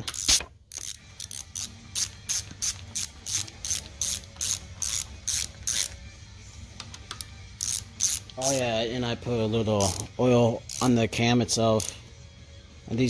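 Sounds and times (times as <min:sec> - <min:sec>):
ratchet wrench clicking: 0:00.0 - 0:06.1, 0:06.8 - 0:08.7, 0:09.8 - 0:11.0, 0:11.7 - 0:12.0.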